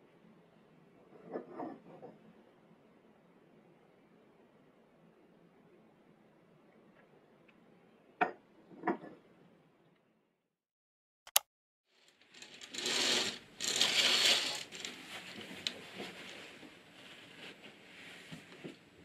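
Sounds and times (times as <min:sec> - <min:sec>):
short click: 0:11.3 - 0:11.5
rustling and handling noise: 0:12.0 - 0:19.0.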